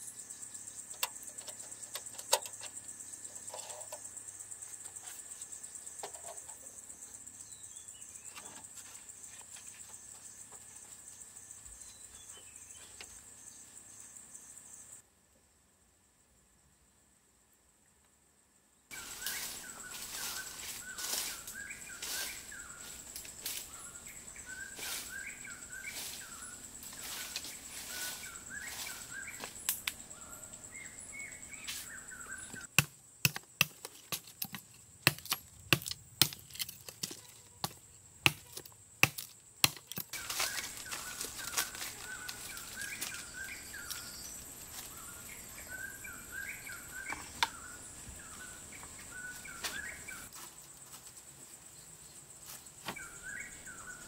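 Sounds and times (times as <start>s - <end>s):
small birds chirping: 0.0s - 15.0s, 18.9s - 32.7s, 33.4s - 50.3s, 51.7s - 54.0s
sharp taps and knocks: 32.7s - 40.2s.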